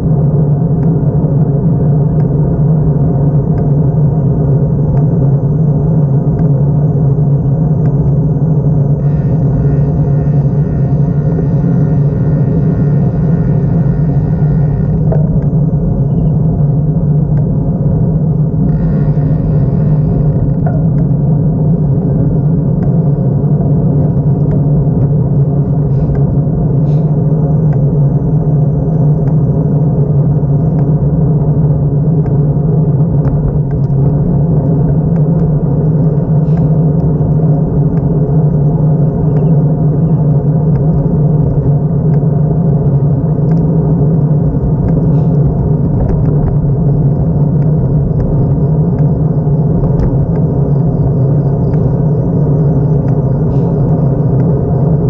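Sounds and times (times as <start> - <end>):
wind and road noise rumble: 0.0 - 55.0.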